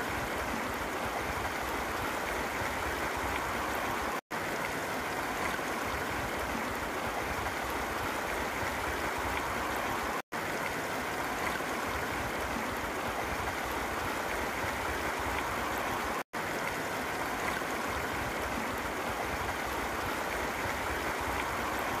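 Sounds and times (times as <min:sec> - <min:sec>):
water rushing over rocks: 0:00.0 - 0:22.0.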